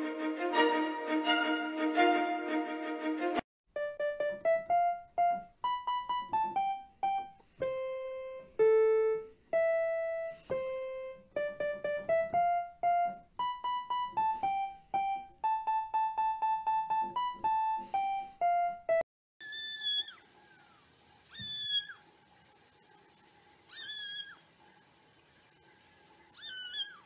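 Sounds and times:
electronic keyboard melody: 0.0 - 19.1.

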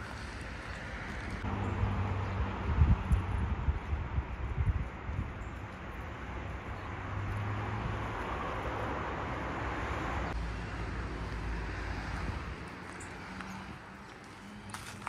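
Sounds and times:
low traffic rumble: 0.0 - 15.0.

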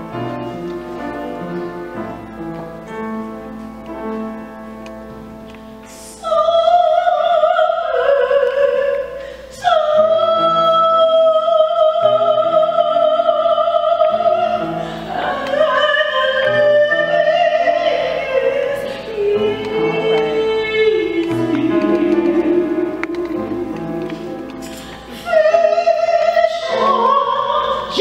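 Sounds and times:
soft keyboard chords: 0.0 - 6.8, 8.3 - 28.0
woman singing long notes: 6.0 - 28.0.

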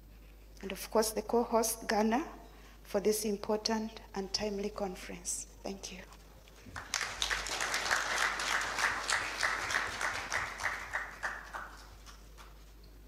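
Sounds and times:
audience applauding: 6.7 - 12.6.

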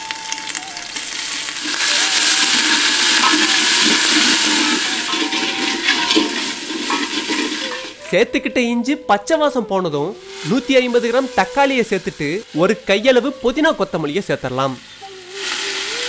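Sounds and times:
paste sizzling in hot oil: 0.0 - 8.0, 10.2 - 16.0
ladle stirring in metal pot: 1.0 - 8.0.

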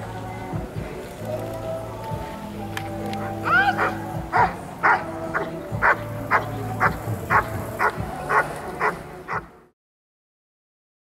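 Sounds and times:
dog barking: 3.5 - 9.5.

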